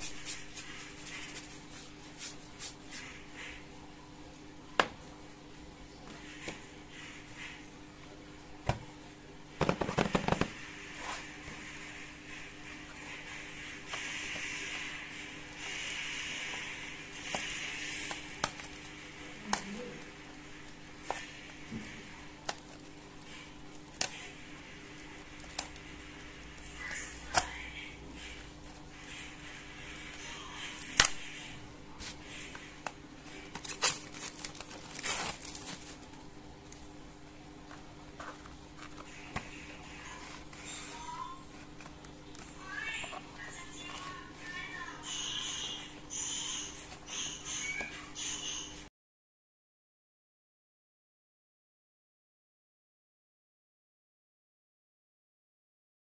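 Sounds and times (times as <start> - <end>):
paintbrush swishing on paper: 0.0 - 3.6
plastic wrapper crackling: 33.5 - 36.8.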